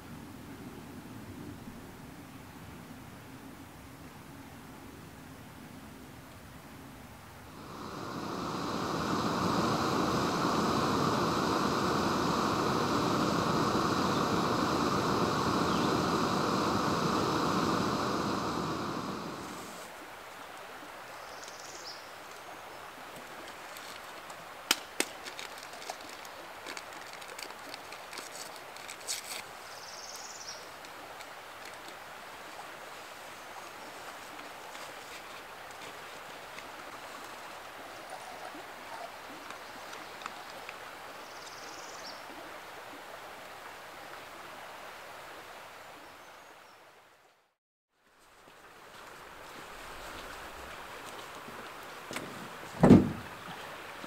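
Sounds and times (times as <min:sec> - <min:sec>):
running water rushing: 0:07.5 - 0:21.2, 0:48.3 - 0:54.0.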